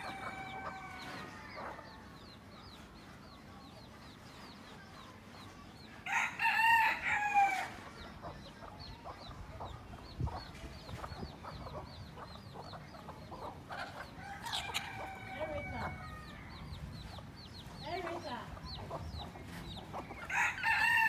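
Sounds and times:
rooster crowing: 0.0 - 2.0, 6.1 - 7.7, 14.2 - 16.6, 20.3 - 21.0.

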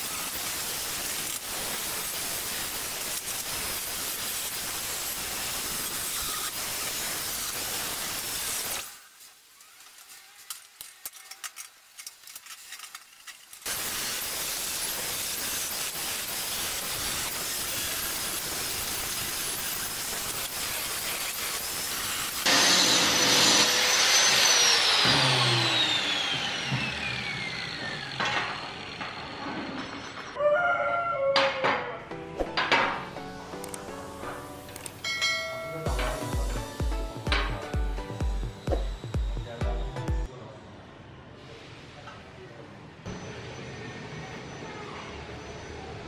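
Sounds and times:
steady hiss: 0.0 - 10.7, 12.2 - 22.5.

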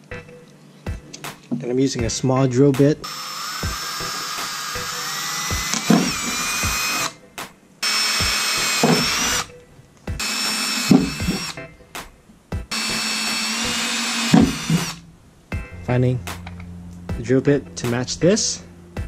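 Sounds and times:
cordless drill whining: 3.0 - 7.2, 7.8 - 9.6, 10.2 - 11.6, 12.7 - 15.0.

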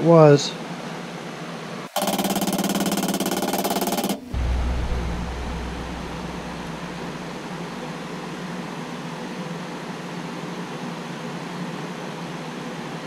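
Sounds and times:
machine hum with hiss: 1.9 - 10.8.

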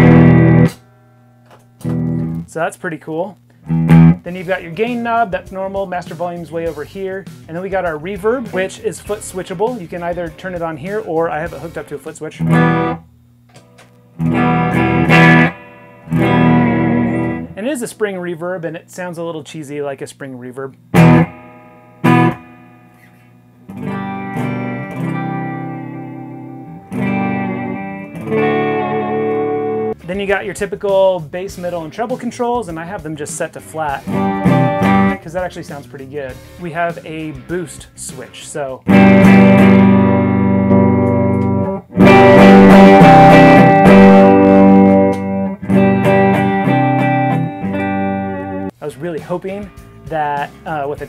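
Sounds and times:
clean electric guitar chords: 0.0 - 2.5, 3.7 - 5.8, 12.4 - 13.5, 14.1 - 17.6, 20.9 - 30.2, 33.9 - 35.3, 38.9 - 48.8.

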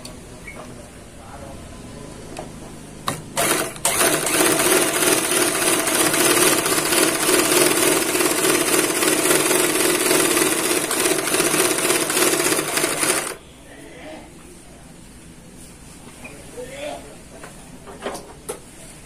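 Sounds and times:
overlock machine whirring: 3.1 - 13.4.

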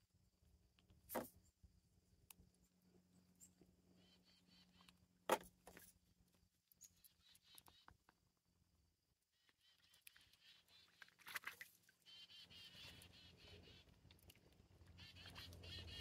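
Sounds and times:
geese splashing water: 9.9 - 16.0.

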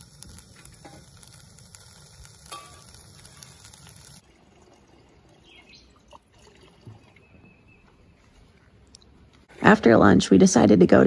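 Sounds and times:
pot hissing and sizzling on stove: 0.0 - 5.6.

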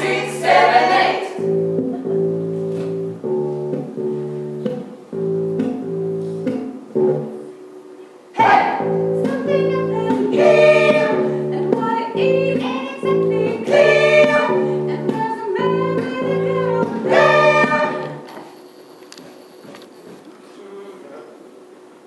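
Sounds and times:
voices singing: 0.0 - 2.0, 8.3 - 18.4
sustained chords: 0.0 - 18.3
electric bass: 1.4 - 7.5, 8.7 - 18.2.

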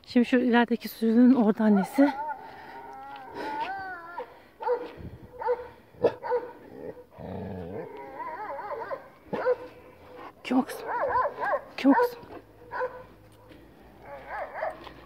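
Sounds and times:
dog barking: 4.6 - 6.6, 8.4 - 9.8, 10.8 - 13.1, 14.0 - 15.0
dog whining: 7.7 - 9.6.

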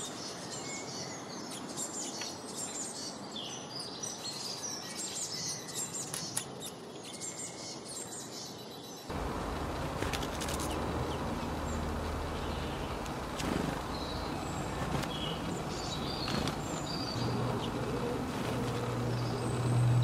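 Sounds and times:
small birds chirping: 0.0 - 20.0
steady low hum: 9.1 - 20.0.

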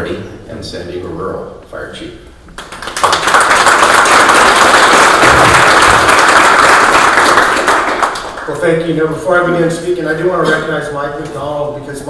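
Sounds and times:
audience applauding: 2.6 - 8.6.

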